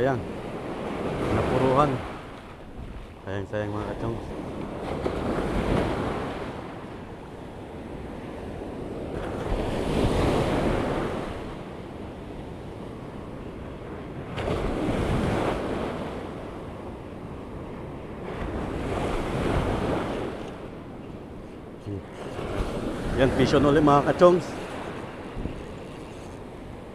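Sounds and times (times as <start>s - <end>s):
wind on microphone: 0.0s - 3.2s, 3.8s - 26.9s
ocean surf breaking: 0.0s - 26.9s.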